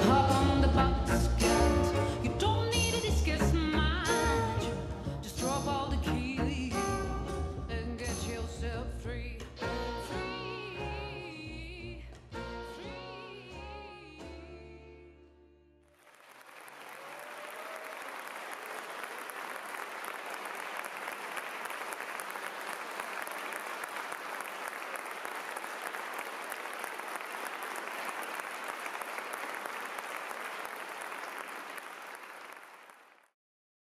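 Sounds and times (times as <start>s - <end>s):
audience applauding: 15.9s - 33.4s.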